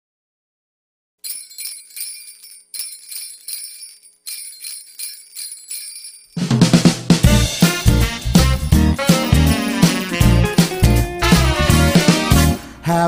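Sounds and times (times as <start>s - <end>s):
sleigh bells shaken: 1.2s - 6.7s, 7.4s - 11.0s.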